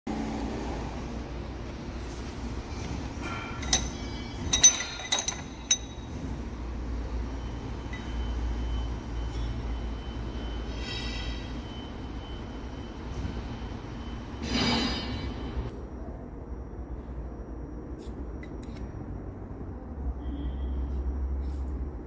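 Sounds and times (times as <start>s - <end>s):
steady low hum: 0.1s - 22.0s
metal rods clinking: 3.2s - 6.3s.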